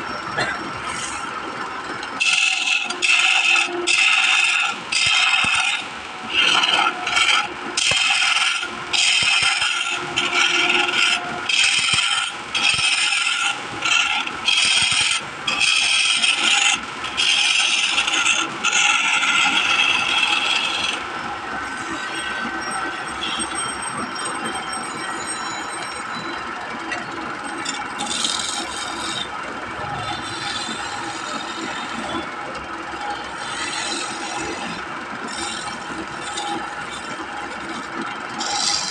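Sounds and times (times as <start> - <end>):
wood lathe running: 0.8 - 24.6, 26.8 - 38.9
chisel scraping wood: 2.2 - 21.0.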